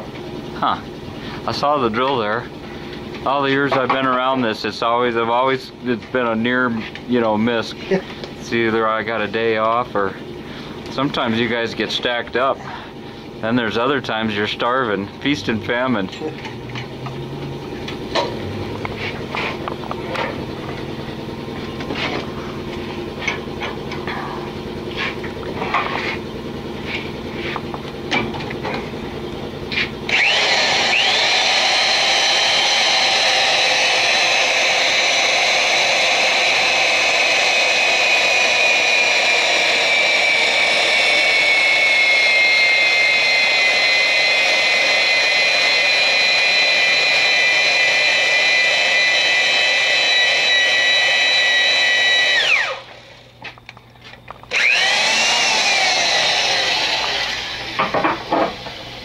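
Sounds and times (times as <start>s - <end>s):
drill motor whining: 29.6s - 53.4s, 54.3s - 59.0s.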